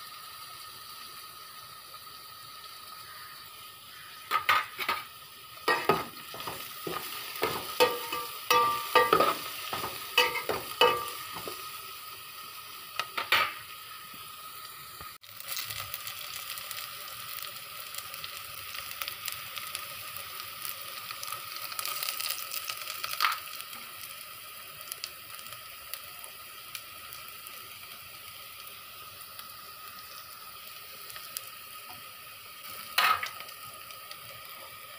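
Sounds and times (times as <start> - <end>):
onions frying hiss: 0.0 - 34.9
metal spoon knocking on pot: 5.7 - 11.6.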